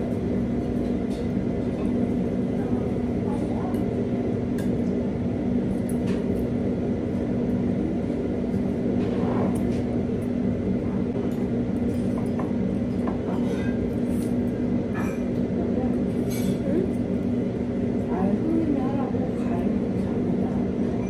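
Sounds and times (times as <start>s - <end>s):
low droning hum: 0.0s - 21.0s.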